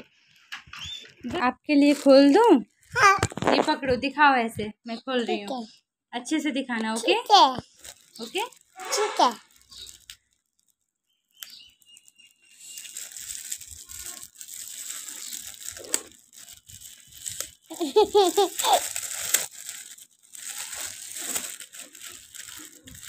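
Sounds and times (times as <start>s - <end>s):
plastic bag crinkling: 0.4s - 3.8s, 6.8s - 23.0s
short high-pitched voice: 8.8s - 9.4s.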